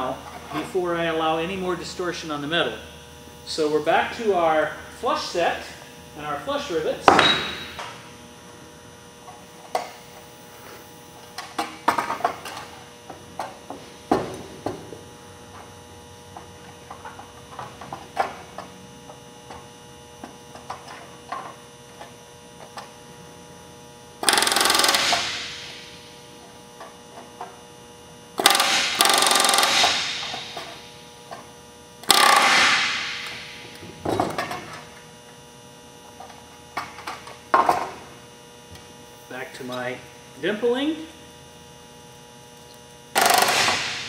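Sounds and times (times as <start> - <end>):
steady electrical hum: 0.0 - 44.0
rivet gun hammering: 24.2 - 25.5, 28.4 - 30.4, 32.0 - 33.4, 43.2 - 44.0.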